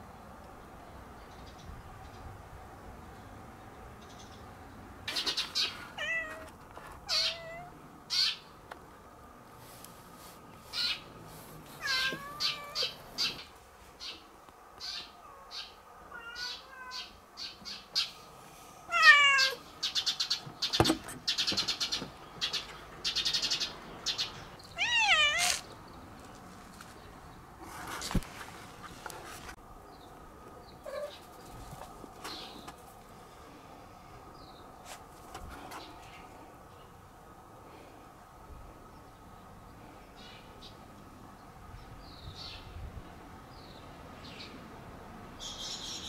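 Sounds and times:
cat meowing: 6.0 - 6.5, 7.1 - 7.7, 11.8 - 13.0, 16.1 - 17.1, 18.9 - 19.6, 24.8 - 25.6.

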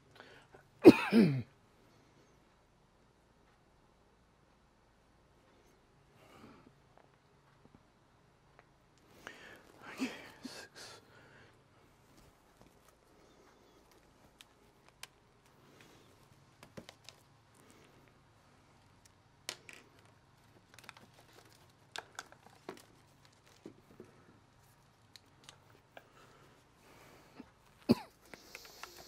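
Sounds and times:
plastic wrap crinkling: 20.0 - 24.1.

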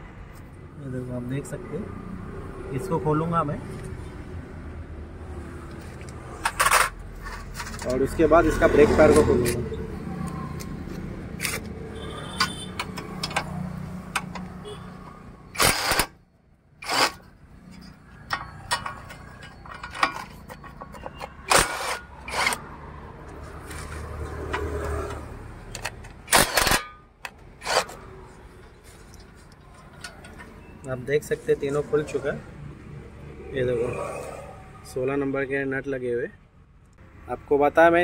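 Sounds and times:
impact wrench bursts: 15.5 - 16.2, 16.8 - 22.7, 25.7 - 28.1.

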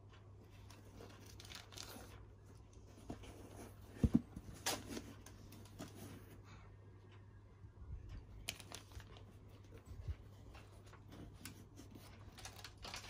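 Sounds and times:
tissue paper rustling: 8.5 - 13.0.

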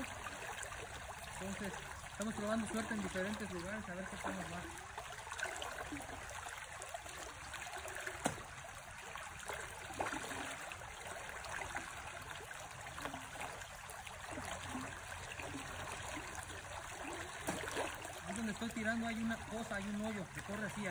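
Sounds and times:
river current trickling: 0.0 - 20.9.

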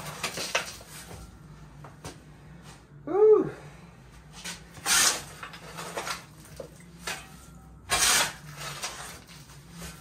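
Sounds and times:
shovel scraping dirt and stones: 7.9 - 10.0.

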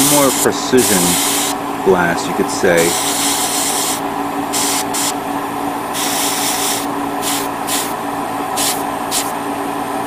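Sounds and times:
airbrush spraying hiss: 0.0 - 1.6, 2.8 - 5.2, 6.0 - 8.0, 8.6 - 9.4
steady hum: 0.0 - 10.0.

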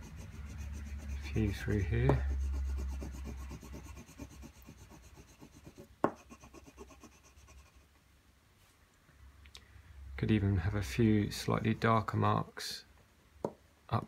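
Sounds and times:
graphite scratching on paper: 0.0 - 7.9.

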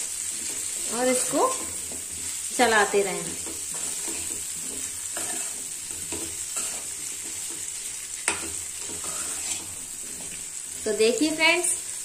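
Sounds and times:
frying sizzle: 0.0 - 12.0
ladle scraping a pan: 3.3 - 10.5.

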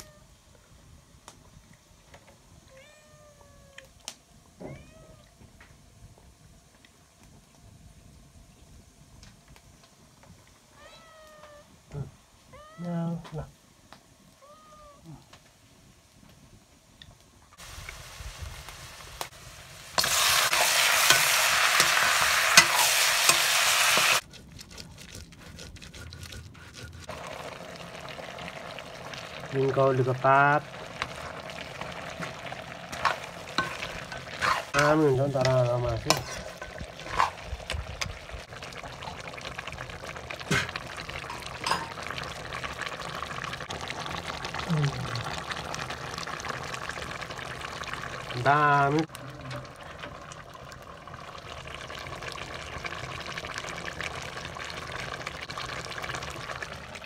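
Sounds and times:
meat sizzling in a wok: 17.6 - 24.2, 27.1 - 57.0
spice paste grinding on stone: 21.9 - 27.1, 33.0 - 34.8.

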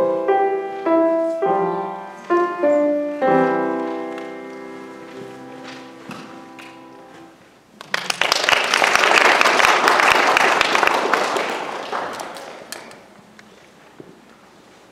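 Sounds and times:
audience applauding: 7.8 - 13.1.

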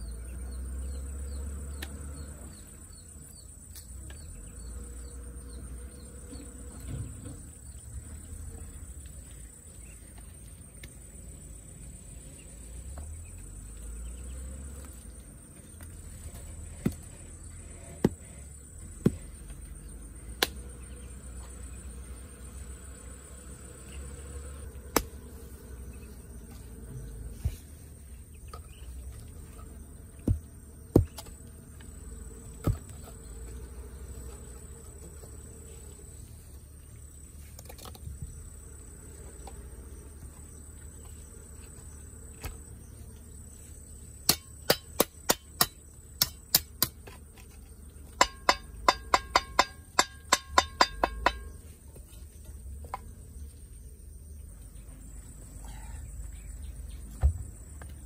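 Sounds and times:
high insect buzz: 0.5 - 51.6
tool striking hard: 44.2 - 47.0, 48.2 - 51.6.

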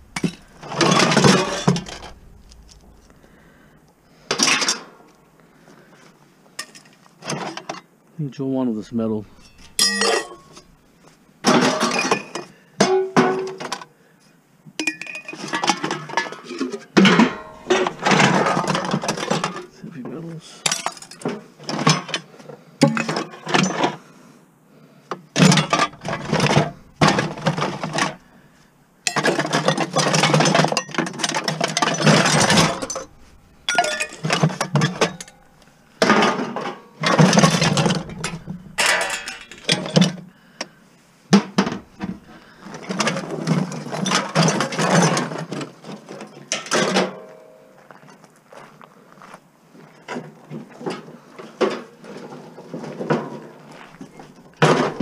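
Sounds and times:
metal scraping: 0.0 - 5.4, 8.7 - 11.1, 17.0 - 19.8, 25.4 - 40.2, 41.6 - 43.6
scrap metal clattering: 0.0 - 5.7, 8.8 - 13.8, 15.3 - 22.1, 25.4 - 40.3, 41.3 - 47.5, 51.6 - 55.0.

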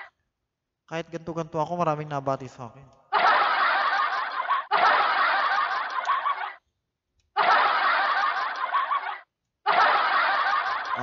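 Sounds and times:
recorded laughter: 3.1 - 6.6, 7.3 - 11.0.

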